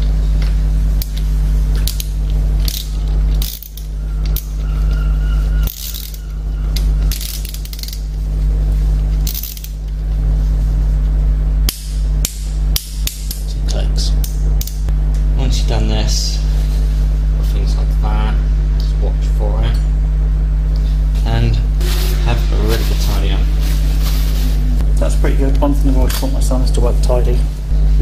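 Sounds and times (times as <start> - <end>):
steady low hum: 0.0 - 28.0
socket ratchet clicking: 1.8 - 4.5.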